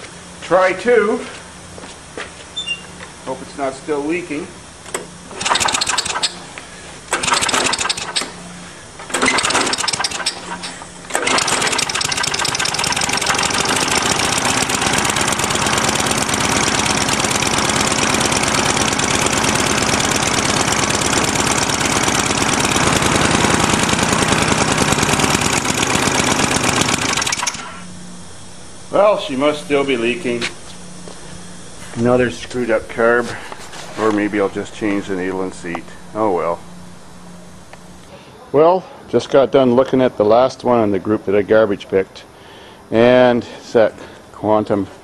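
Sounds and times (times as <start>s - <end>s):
lawn mower engine running: 4.8s - 38.1s
recoil starter cord cranking: 5.3s - 6.5s, 7.1s - 8.4s, 9.0s - 27.9s.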